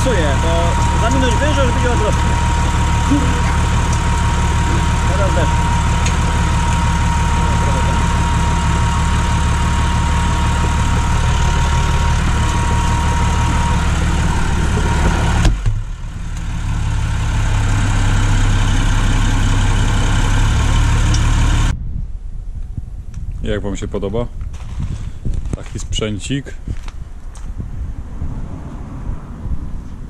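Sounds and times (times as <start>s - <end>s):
diesel engine idling: 0.0s - 21.7s.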